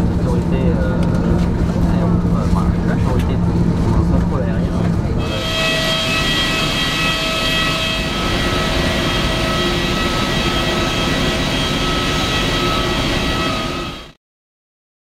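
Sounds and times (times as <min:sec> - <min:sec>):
jet turbine whine: 0:00.0 - 0:14.2
high steady tones: 0:05.2 - 0:14.2
rushing noise: 0:05.2 - 0:14.2.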